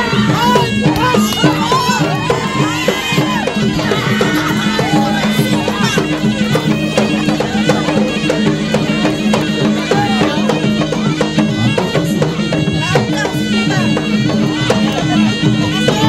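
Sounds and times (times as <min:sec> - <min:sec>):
wind instrument wavering melody: 0:00.0 - 0:16.0.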